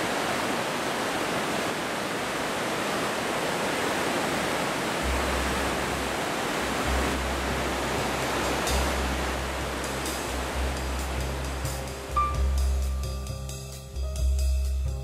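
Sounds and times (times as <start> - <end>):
stream water rushing: 0.0 - 13.8.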